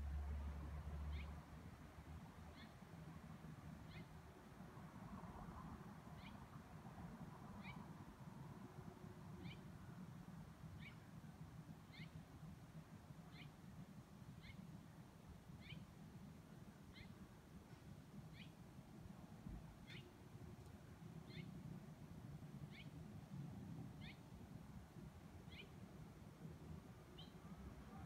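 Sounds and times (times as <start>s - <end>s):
bird chirping: 1.1s - 1.4s, 2.5s - 2.8s, 3.8s - 4.2s, 6.2s - 6.4s, 7.6s - 7.9s, 9.4s - 9.7s, 10.7s - 11.0s, 11.9s - 12.2s, 13.3s - 13.6s, 14.3s - 14.7s, 15.6s - 15.9s, 16.9s - 17.2s, 18.3s - 18.6s, 19.8s - 20.1s, 21.2s - 21.6s, 22.6s - 23.0s, 24.0s - 24.3s, 25.5s - 25.8s, 27.1s - 28.0s.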